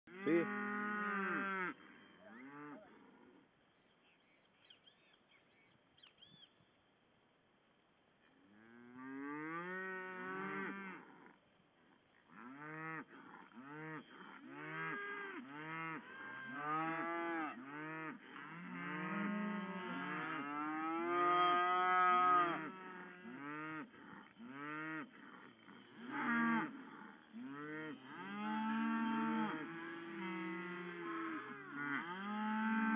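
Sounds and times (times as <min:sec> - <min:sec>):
calves mooing: 0:00.1 - 0:02.9, 0:12.4 - 0:32.9.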